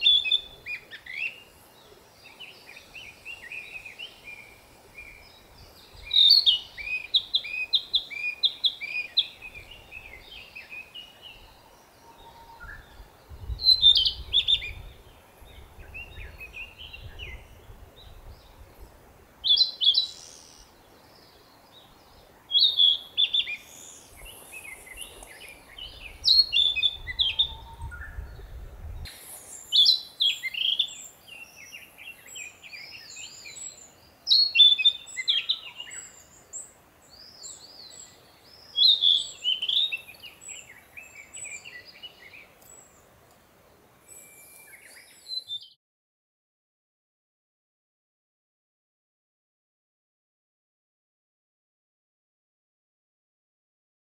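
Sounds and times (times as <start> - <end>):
bird whistled song phrases: 0.0 - 1.4, 6.0 - 11.4, 12.1 - 14.9, 22.5 - 36.4, 37.2 - 42.4, 44.0 - 45.8
soft bird chirps: 0.0 - 43.4, 44.0 - 45.8.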